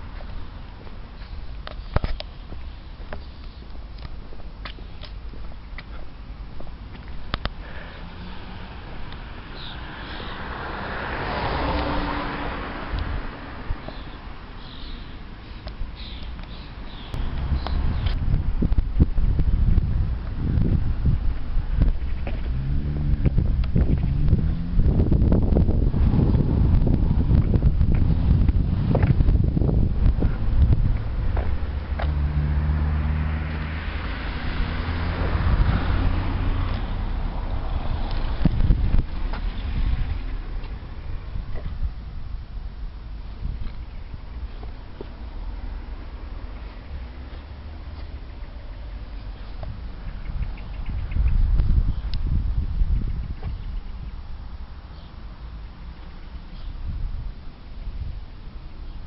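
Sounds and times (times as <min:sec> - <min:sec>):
wind rumble on microphone: 0:00.0 - 0:14.5, 0:15.6 - 0:59.0
small birds chirping: 0:00.2 - 0:06.3, 0:09.2 - 0:10.5, 0:13.8 - 0:18.2, 0:43.3 - 0:45.2, 0:46.5 - 0:52.3, 0:52.9 - 0:56.9
car passing: 0:07.2 - 0:14.6, 0:16.8 - 0:43.2, 0:44.3 - 0:51.5.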